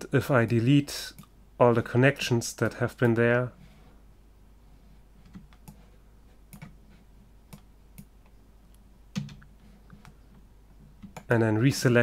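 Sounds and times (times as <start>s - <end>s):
mouse and keyboard clicks: 6.5s - 6.8s.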